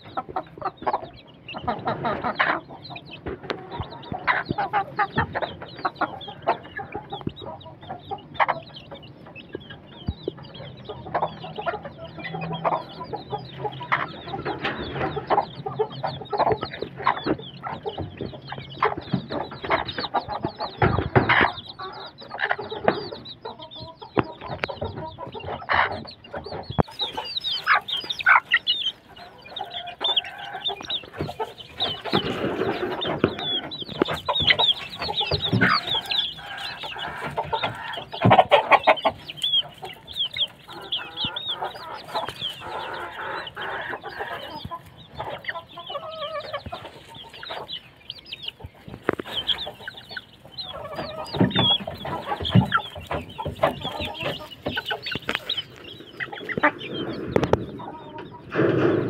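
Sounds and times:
chicks peeping: 0:00.0 - 0:59.0
hen clucking: 0:00.0 - 0:59.0.

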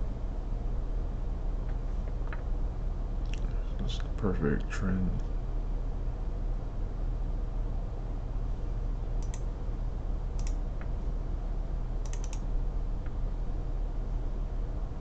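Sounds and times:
steady low hum: 0:00.0 - 0:15.0
computer mouse clicks: 0:09.2 - 0:09.5, 0:10.4 - 0:10.9, 0:12.0 - 0:12.5.

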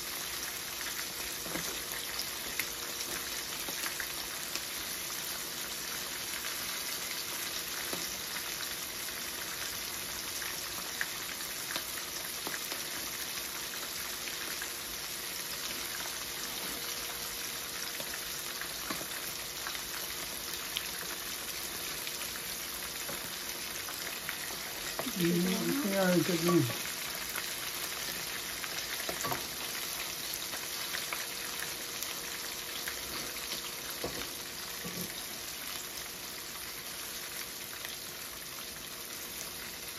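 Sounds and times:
fish sizzling in oil: 0:00.0 - 0:39.9
brief voice: 0:25.1 - 0:26.8.

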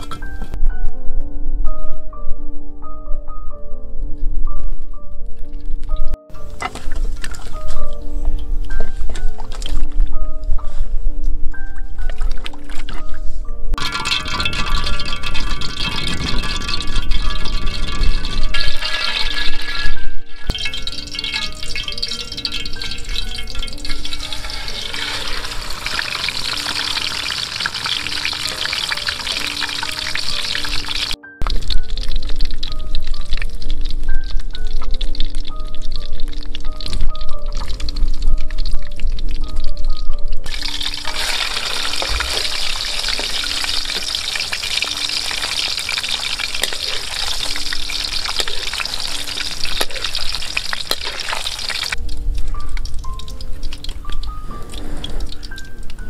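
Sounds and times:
fish sizzling in hot oil: 0:13.8 - 0:39.6, 0:40.4 - 0:56.0.

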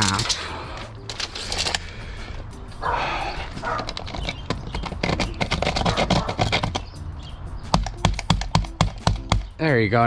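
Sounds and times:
sharp clicks: 0:03.6 - 0:07.0, 0:07.7 - 0:09.6
tool scratching stucco: 0:05.0 - 0:06.9.

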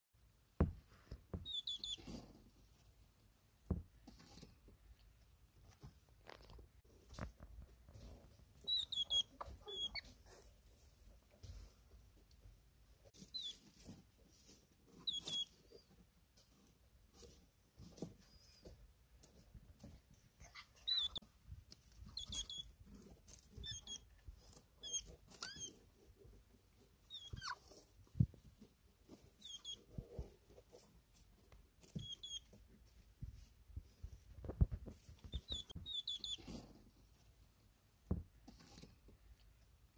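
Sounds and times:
soft thumps: 0:00.6 - 0:01.6, 0:03.6 - 0:04.2
hedgehog squeaky chirps: 0:01.4 - 0:02.2, 0:08.6 - 0:10.2, 0:13.2 - 0:13.7, 0:14.9 - 0:15.9, 0:20.4 - 0:21.2, 0:22.0 - 0:22.8, 0:23.5 - 0:24.1, 0:24.8 - 0:25.8, 0:27.0 - 0:27.8, 0:29.4 - 0:30.0, 0:31.8 - 0:32.6, 0:35.2 - 0:36.6
snuffling and rustling: 0:05.6 - 0:39.9.

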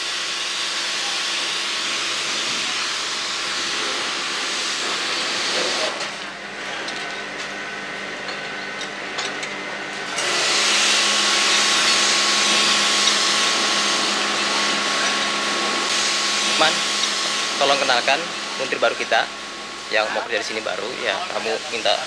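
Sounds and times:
loud steady hiss: 0:10.2 - 0:22.0.

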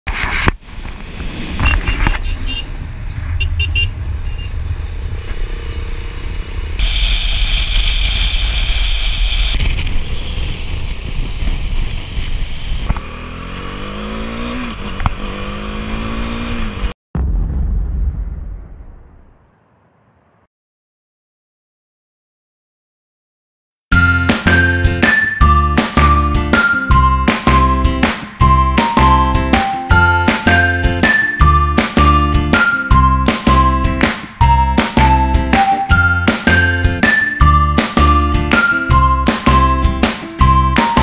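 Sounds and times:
wind rushing over microphone: 0:00.2 - 0:13.0
motorcycle engine: 0:00.9 - 0:17.0.

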